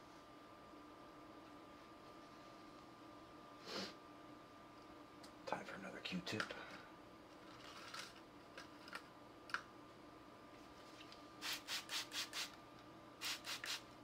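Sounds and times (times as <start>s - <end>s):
spray bottle squirting: 11.4s - 12.5s, 13.2s - 13.8s.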